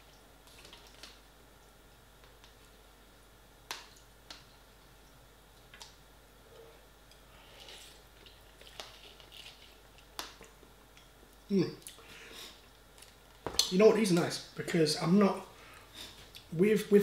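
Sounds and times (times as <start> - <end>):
faint eating sounds: 3.7 - 16.8.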